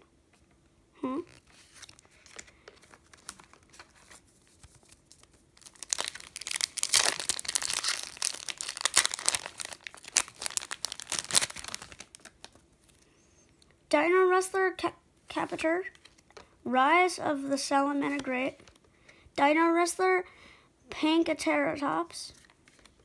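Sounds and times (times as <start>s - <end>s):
foil wrapper crinkling and tearing: 1.3s - 12.9s.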